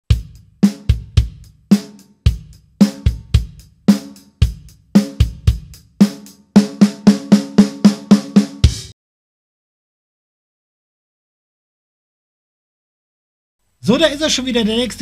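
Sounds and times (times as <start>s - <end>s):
drum fill: 0.0s - 9.0s
drum kit groove: 0.0s - 9.0s
accented drum hit: 0.1s - 9.0s.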